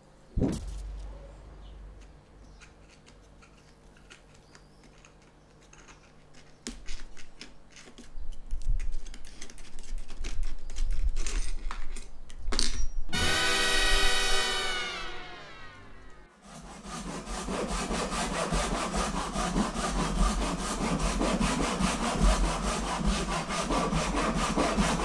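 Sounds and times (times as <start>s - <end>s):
low rumbling bumps: 0.3s - 2.2s
blade clicking and scraping on wood: 2.0s - 12.1s.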